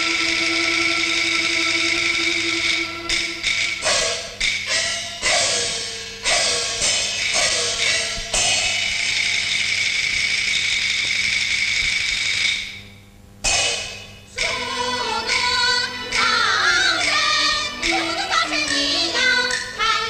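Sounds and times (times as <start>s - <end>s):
percussion stroke: 0.0s - 12.8s, 13.4s - 20.0s
opera singing with accompaniment: 14.4s - 20.0s.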